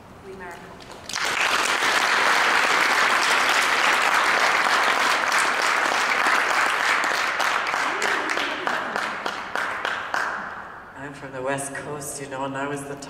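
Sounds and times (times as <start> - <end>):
audience applauding: 0.9 - 10.7.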